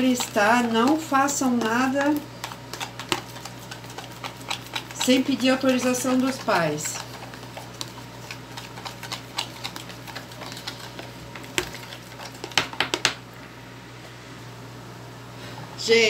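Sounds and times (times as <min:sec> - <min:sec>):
spoon scraping plastic tub: 0:00.0 - 0:13.0.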